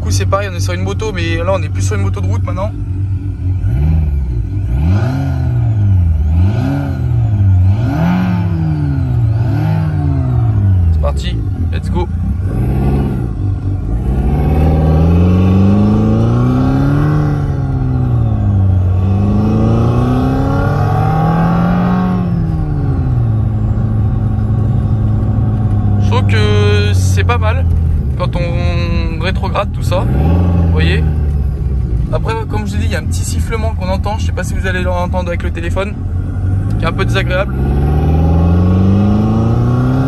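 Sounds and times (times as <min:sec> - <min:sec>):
road noise: 0:00.0 - 0:40.0
simulated motorcycle engine revving: 0:01.7 - 0:28.1, 0:28.8 - 0:33.1, 0:36.2 - 0:40.0.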